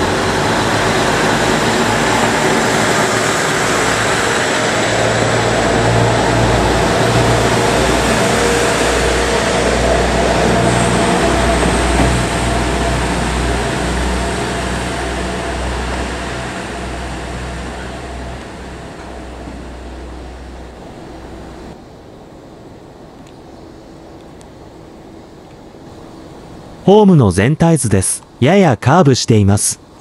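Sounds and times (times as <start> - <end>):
diesel engine droning: 0.0 - 21.8
wheel and rail noise: 0.0 - 26.9.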